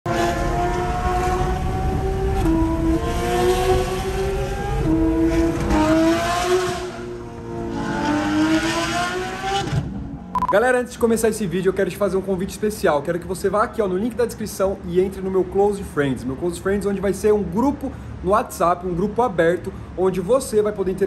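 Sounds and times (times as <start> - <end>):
car engine revving through gears: 0.1 - 10.0.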